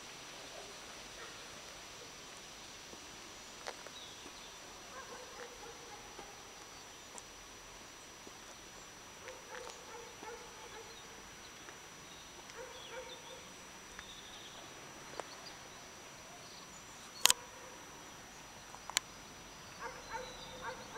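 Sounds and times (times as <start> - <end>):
distant fowl calls: 19.8 - 20.9.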